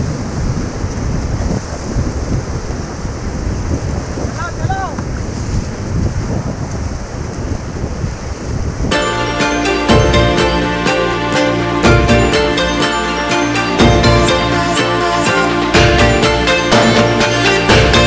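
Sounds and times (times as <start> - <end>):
wind buffeting microphone: 0.0 - 9.0
rushing water: 0.0 - 18.0
person calling out: 4.4 - 5.0.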